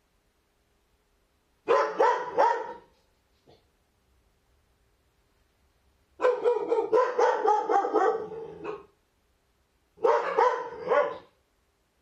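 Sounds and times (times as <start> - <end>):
large dog barking: 1.6 - 2.9, 6.2 - 9.0, 10.0 - 11.4.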